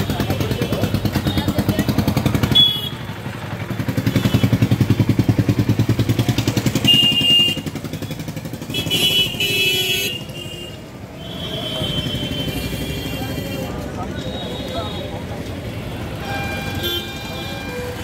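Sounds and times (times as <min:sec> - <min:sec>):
motorcycle engine chugging: 0:00.0 - 0:10.4
street traffic: 0:00.0 - 0:18.0.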